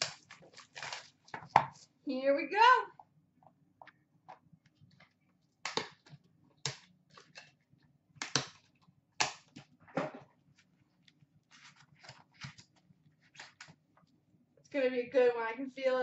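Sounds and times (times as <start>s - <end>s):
packaging scraping and rustling: 0.0s - 1.9s.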